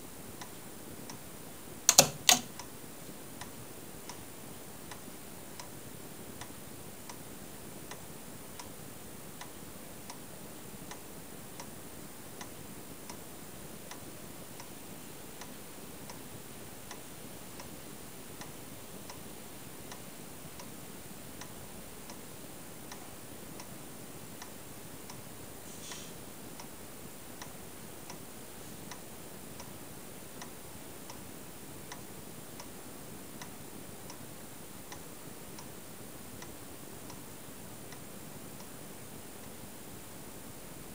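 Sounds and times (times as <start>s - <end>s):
pendulum clock ticking: 1.9s - 2.7s
faint high hiss: 10.0s - 40.9s.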